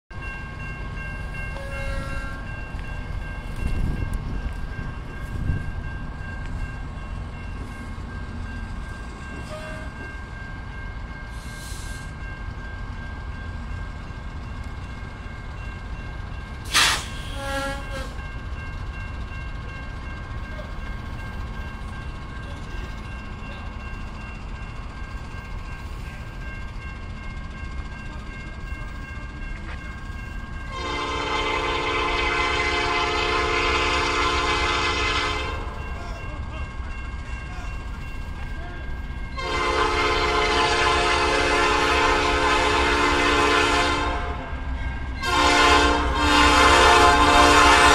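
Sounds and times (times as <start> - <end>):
crossing signal ringing: 0.1 - 47.9
low train rumble: 0.1 - 47.9
locomotive horn blast: 1.6 - 2.4, 16.7 - 18.2, 30.7 - 35.8, 39.4 - 44.5, 45.2 - 47.9.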